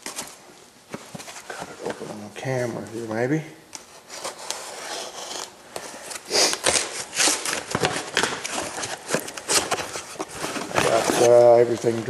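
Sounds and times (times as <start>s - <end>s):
cardboard and tape rustling: 0.0s - 3.2s, 3.8s - 12.0s.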